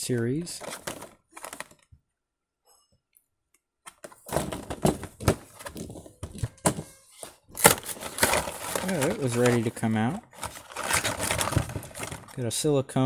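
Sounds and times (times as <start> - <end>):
plastic blister pack crackling: 7.6 - 12.4.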